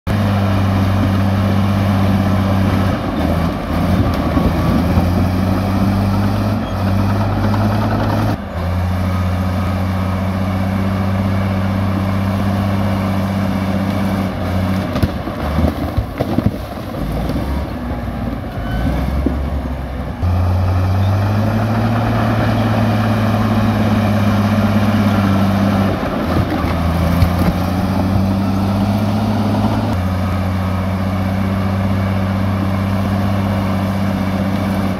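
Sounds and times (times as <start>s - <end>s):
bulldozer diesel engine: 0.1s - 34.9s.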